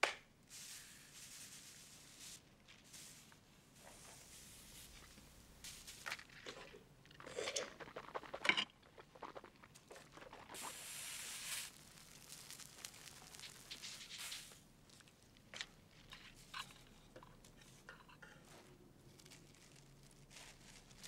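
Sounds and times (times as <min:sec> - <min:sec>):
sugar pouring hiss: 0:00.4 - 0:15.1
plastic wrap and paper crinkling: 0:00.5 - 0:06.8, 0:07.8 - 0:16.9, 0:18.5 - 0:21.0.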